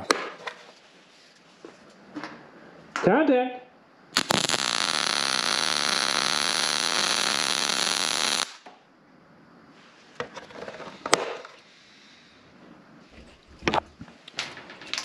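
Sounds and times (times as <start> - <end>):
welding arc buzzing: 4.2 - 8.6.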